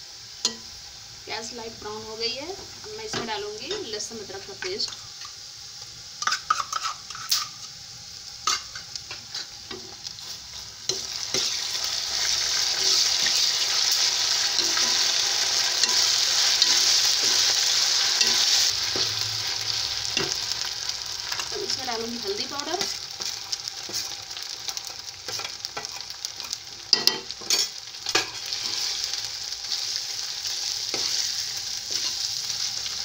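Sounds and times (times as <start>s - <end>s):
loud frying sizzle: 0.0s - 33.0s
spoon scraping pan: 6.2s - 7.8s, 8.4s - 19.2s, 20.1s - 20.5s, 22.4s - 29.0s, 30.9s - 32.3s.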